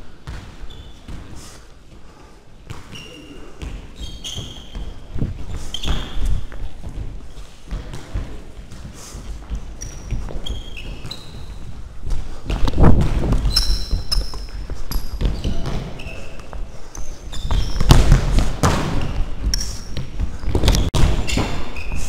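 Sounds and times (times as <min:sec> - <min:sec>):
sneakers squeaking on floor: 0:00.2 - 0:01.6, 0:02.6 - 0:22.0
running thuds and rustling: 0:04.8 - 0:15.9.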